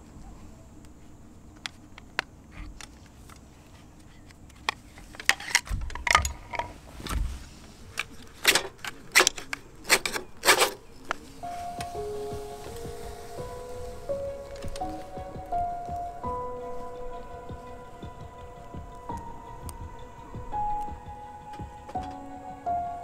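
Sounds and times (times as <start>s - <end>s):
objects clinking and knocking: 4.6s - 6.8s
low thumps: 11.6s - 23.0s.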